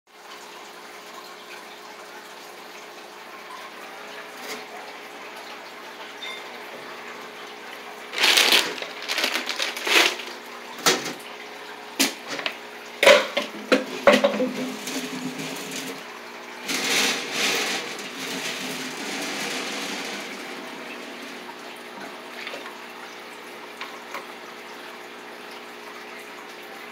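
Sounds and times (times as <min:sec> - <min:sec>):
rustling: 0:08.1 - 0:10.4.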